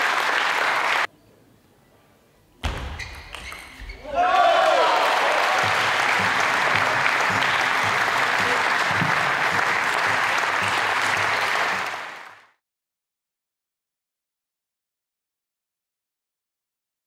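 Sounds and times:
spectators applauding: 0.0 - 1.1, 4.2 - 12.6.

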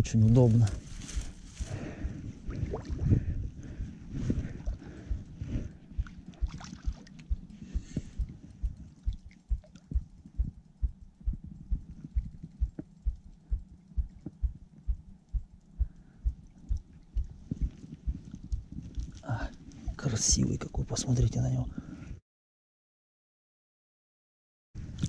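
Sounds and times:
footsteps walking: 0.3 - 2.0.

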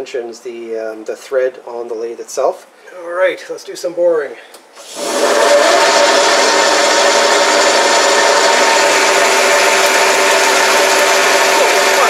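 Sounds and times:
lathe running: 4.8 - 12.0.

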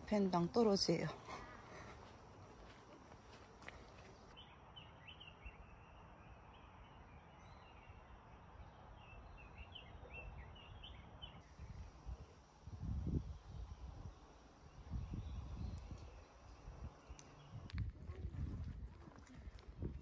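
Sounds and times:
small birds chirping: 0.0 - 12.1, 13.2 - 20.0
outdoor background noise: 0.0 - 20.0
low rumble on microphone: 11.4 - 20.0.

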